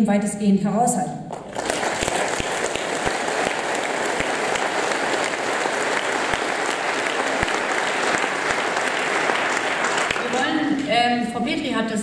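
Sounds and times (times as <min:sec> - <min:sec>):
audience applauding: 0:01.3 - 0:10.9.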